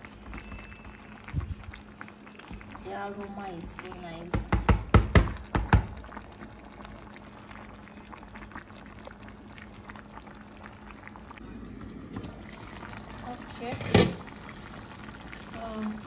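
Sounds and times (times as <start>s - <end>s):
soup bubbling and popping: 0.0s - 16.0s.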